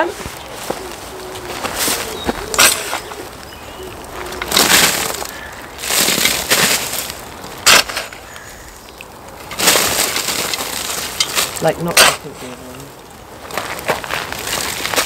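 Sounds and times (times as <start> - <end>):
soil pouring onto coals: 0.2 - 15.0
shovel scraping soil: 1.6 - 3.2, 4.3 - 8.2.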